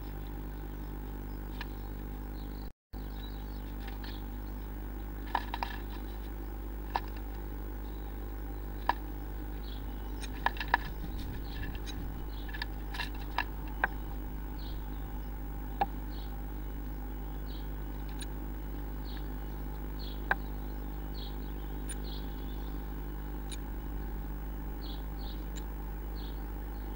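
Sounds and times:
electrical hum: 0.0 - 26.9
bird tapping and scratching on wood: 5.2 - 7.4, 10.2 - 14.3.

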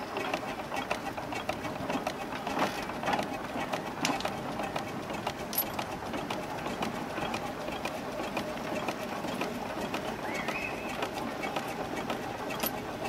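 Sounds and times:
steam engine running: 0.0 - 13.0.

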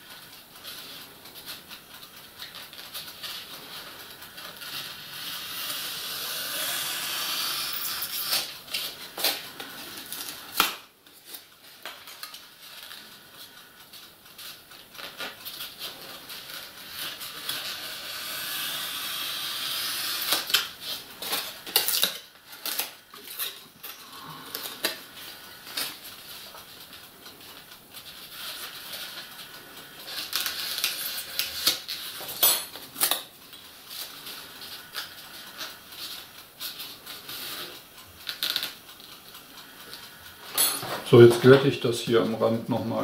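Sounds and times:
high hiss: 5.2 - 8.5.

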